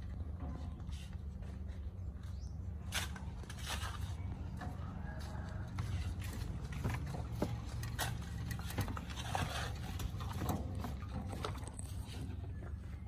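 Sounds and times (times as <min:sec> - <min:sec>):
hoe scraping through sand: 0:02.8 - 0:12.7
wheelbarrow being moved: 0:02.8 - 0:13.0.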